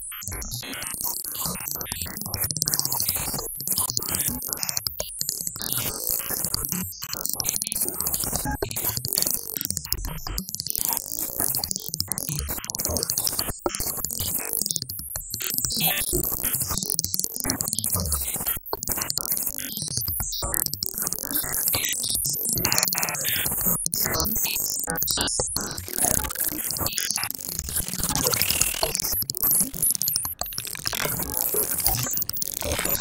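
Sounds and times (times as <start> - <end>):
glitchy synthesizer music: 27.3 - 33.0.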